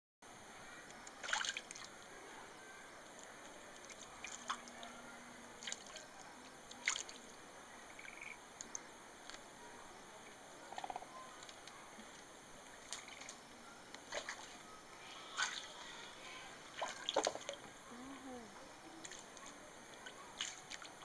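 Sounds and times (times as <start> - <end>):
splashes and drips in shallow water: 0.9 - 2.1, 3.1 - 7.4, 12.6 - 13.4, 14.0 - 14.6, 15.3 - 15.8, 16.7 - 17.6, 19.0 - 21.0.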